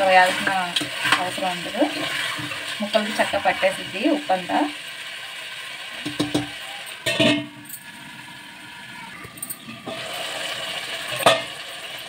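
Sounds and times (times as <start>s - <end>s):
curry sizzling: 0.0s - 12.0s
spoon knocking against pot: 6.0s - 7.5s.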